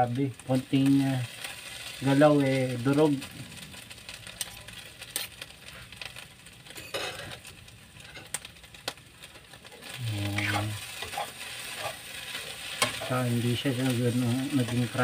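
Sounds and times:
light sizzle: 0.0s - 15.0s
utensils scraping frying pan: 6.9s - 8.4s, 9.3s - 15.0s
man humming: 10.0s - 10.8s
utensils clicking against pan: 10.4s - 13.2s.

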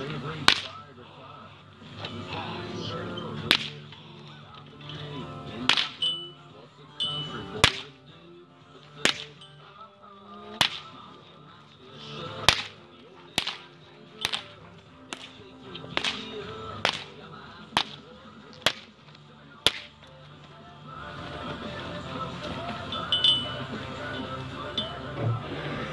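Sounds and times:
whip cracking: 0.4s - 0.8s, 3.5s - 3.9s, 5.6s - 6.2s, 7.6s - 8.0s, 9.0s - 9.4s, 10.6s - 11.0s, 12.4s - 15.4s, 16.0s - 20.0s.

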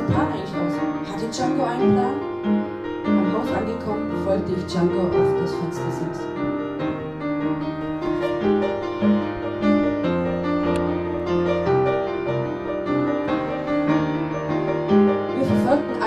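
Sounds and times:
slow gentle piano: 0.0s - 16.0s.

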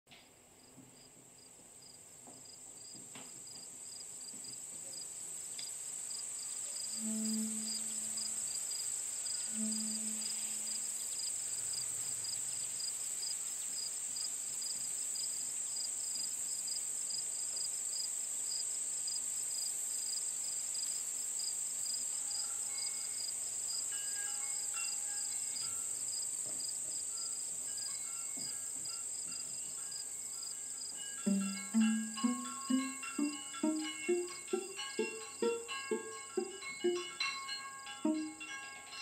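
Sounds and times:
crickets chirping: 0.6s - 39.0s
low held musical notes: 6.9s - 11.0s, 31.1s - 39.0s
short higher musical notes: 7.0s - 8.5s, 9.5s - 10.8s, 31.2s - 39.0s.

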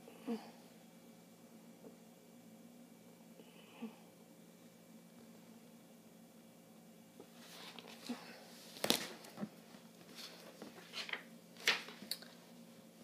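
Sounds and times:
paper rustling: 7.4s - 12.1s.

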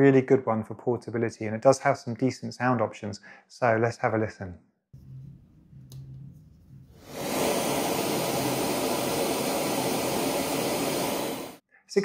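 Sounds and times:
white noise machine hiss: 6.8s - 11.6s.

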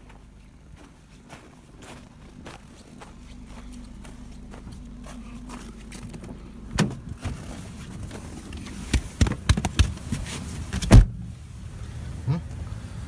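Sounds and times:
car engine idling: 0.0s - 13.0s
car door shutting: 6.0s - 11.2s
knocks and thuds: 8.8s - 11.2s.

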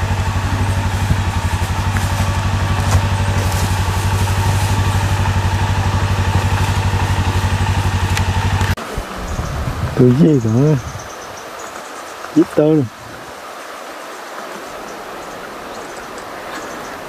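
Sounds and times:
atv engine idling: 0.0s - 10.9s.

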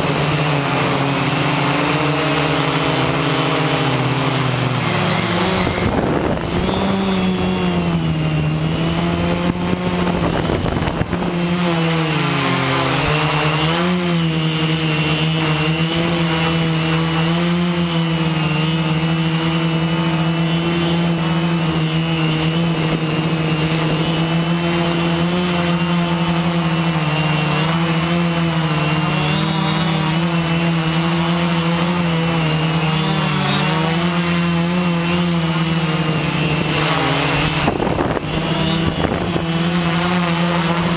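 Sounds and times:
drone motors buzzing: 0.0s - 40.9s
wind buffeting microphone: 5.4s - 11.6s, 36.6s - 39.6s.

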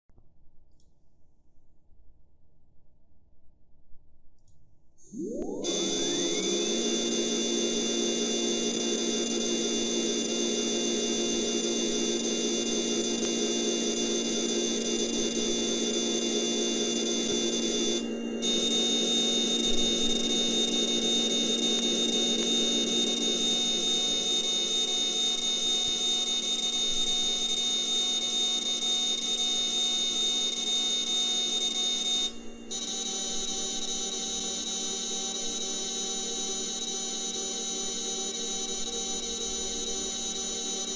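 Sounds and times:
lathe spindle and cutting whine: 5.1s - 27.4s.

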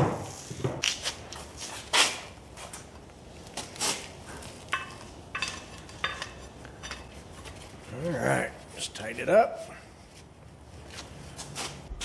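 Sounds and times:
metal rod clinking and scraping: 4.6s - 7.8s.

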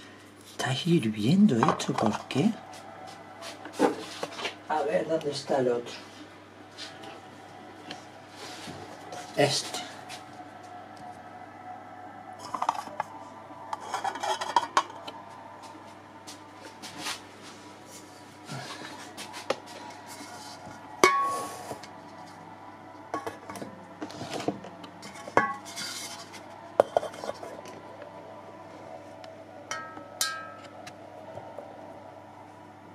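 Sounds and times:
metal bowls clinking and scraping: 1.5s - 2.6s, 12.4s - 15.2s, 19.6s - 22.4s, 23.1s - 27.8s, 29.7s - 30.9s.

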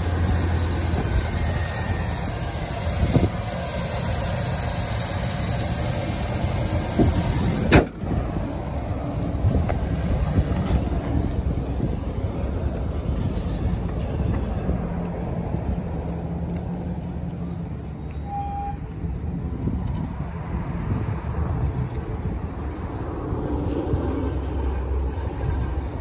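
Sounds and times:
pickup engine idling: 0.0s - 14.8s.

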